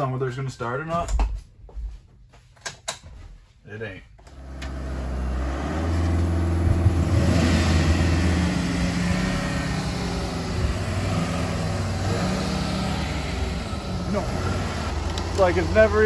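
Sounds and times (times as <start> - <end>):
car engine idling: 4.3 - 16.0.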